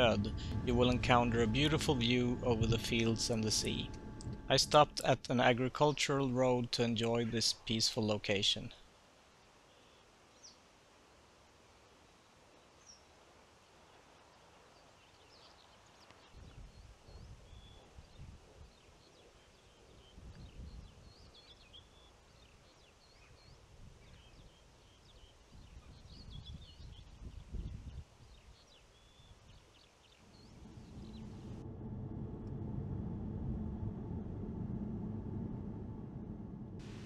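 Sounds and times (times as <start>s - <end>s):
wind gusts on microphone: 0.0s - 5.2s, 16.4s - 18.8s, 20.0s - 21.3s, 25.5s - 28.6s, 30.2s - 37.0s
low rumble: 0.0s - 6.9s, 30.2s - 37.0s
songbirds chirping: 13.9s - 31.6s.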